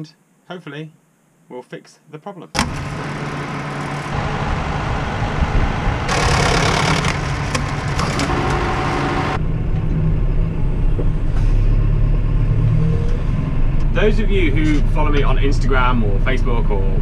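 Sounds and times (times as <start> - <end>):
tractor engine idling: 2.7 - 11.3
loud rushing hiss: 4.1 - 9.4.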